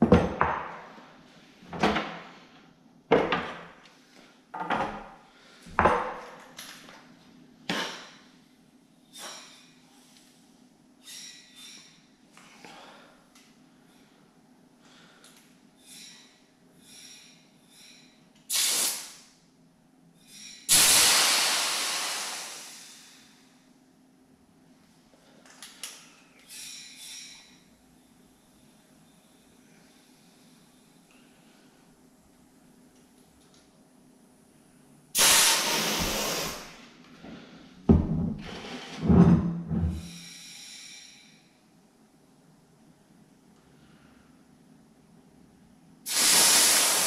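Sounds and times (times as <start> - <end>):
plastic tables knocking on worktop: 0.0 - 0.7
compressed air blast hissing: 18.5 - 19.2, 20.3 - 23.3, 35.2 - 36.8, 46.0 - 47.0.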